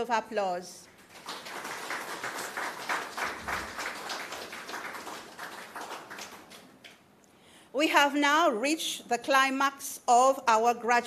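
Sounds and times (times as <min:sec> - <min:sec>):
audience applauding: 0:01.0 - 0:07.0.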